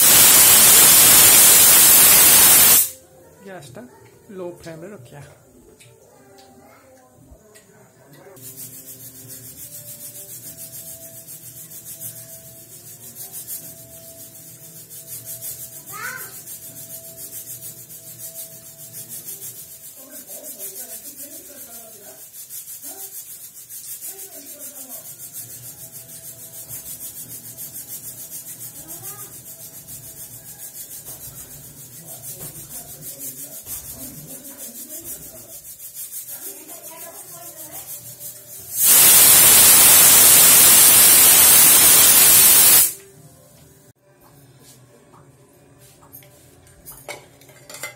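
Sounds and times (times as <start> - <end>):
pressure cooker hissing: 0.0 - 3.0, 38.7 - 43.0.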